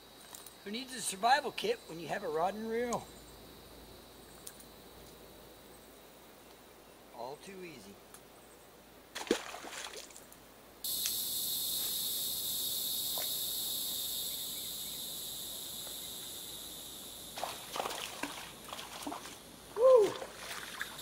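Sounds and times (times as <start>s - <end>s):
insect chorus: 0.0s - 21.0s.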